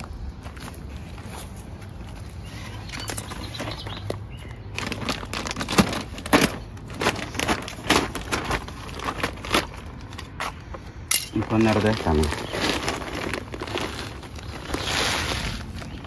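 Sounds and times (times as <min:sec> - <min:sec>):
soil rustling and thumping: 0:00.0 - 0:10.6.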